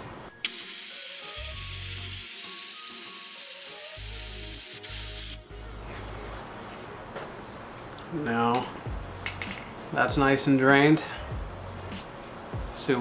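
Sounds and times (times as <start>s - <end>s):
pneumatic vacuum pump hissing: 0.4s - 5.4s.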